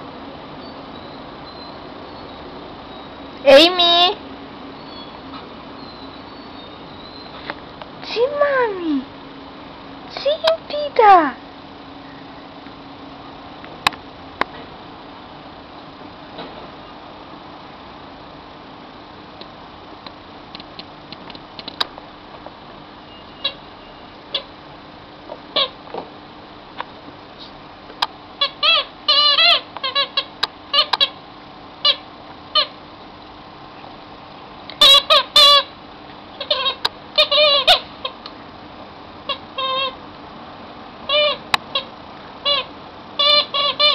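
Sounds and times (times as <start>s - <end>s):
steady low hiss: 0.0s - 29.1s
puppy squeaking: 4.8s - 5.2s, 5.8s - 7.4s, 28.4s - 31.2s, 34.8s - 35.7s, 36.4s - 38.2s, 39.3s - 40.0s, 41.1s - 43.9s
sharp clicks: 19.4s - 21.9s.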